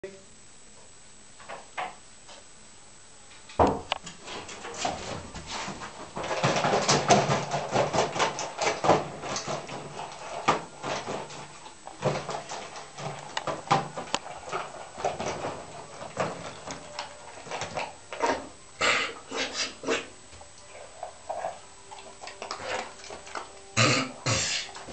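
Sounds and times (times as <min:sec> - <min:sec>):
dog crunching kibble in metal bowl: 0:05.9 - 0:24.9.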